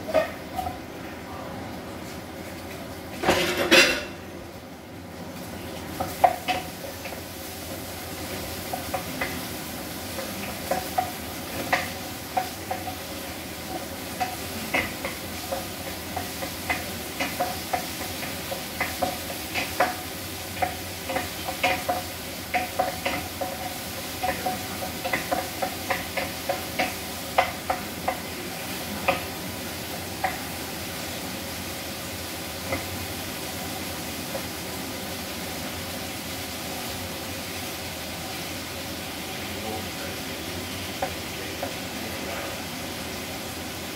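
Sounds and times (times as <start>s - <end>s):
tomatoes sizzling in a frying pan: 0.0s - 43.9s
wooden spatula knocking on pan: 10.2s - 13.0s, 13.7s - 20.0s, 20.6s - 28.3s.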